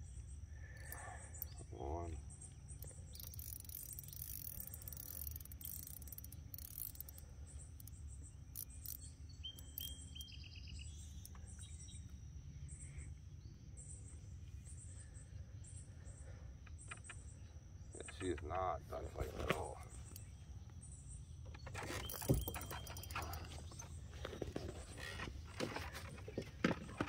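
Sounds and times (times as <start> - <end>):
faint insects chirping: 0.0 - 27.0
rapid high ticks: 2.4 - 11.7.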